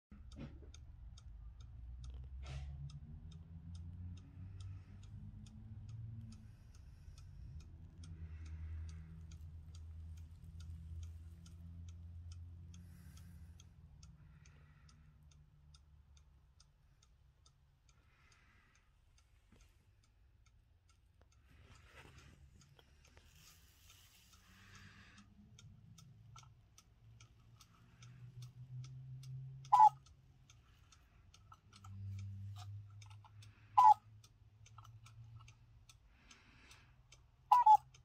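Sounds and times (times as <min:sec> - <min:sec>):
low steady rumble: 0:00.1 - 0:38.0
mechanical clock ticking: 0:00.1 - 0:38.0.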